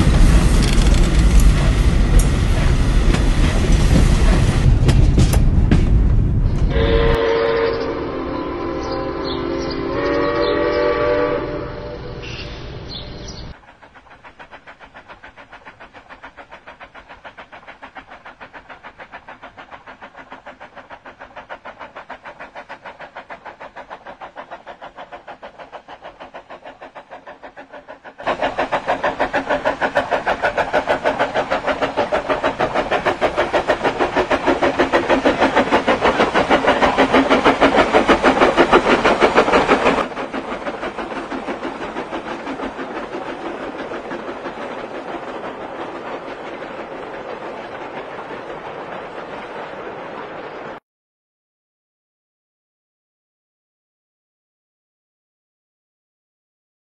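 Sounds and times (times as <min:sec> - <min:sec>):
steam locomotive exhaust beat: 0:00.0 - 0:50.8
steam locomotive whistle: 0:06.7 - 0:12.7.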